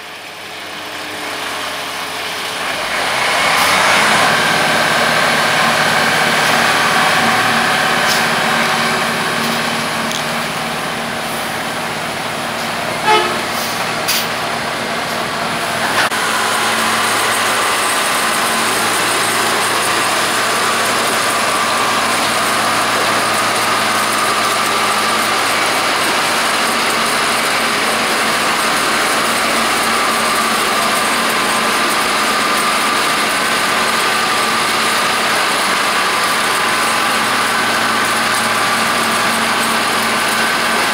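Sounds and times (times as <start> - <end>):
snowplow engine and blower running: 0.0 - 40.9
short horn toot: 13.0 - 13.8.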